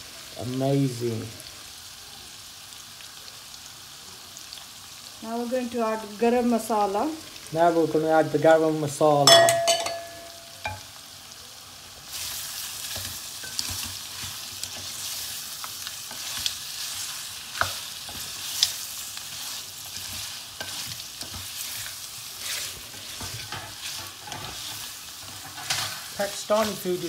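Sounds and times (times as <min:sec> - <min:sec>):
meat sizzling in oil: 0:00.0 - 0:27.0.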